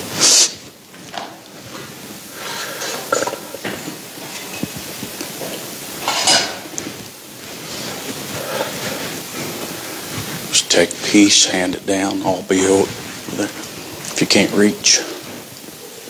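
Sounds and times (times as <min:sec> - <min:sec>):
rustling: 0:00.9 - 0:11.2.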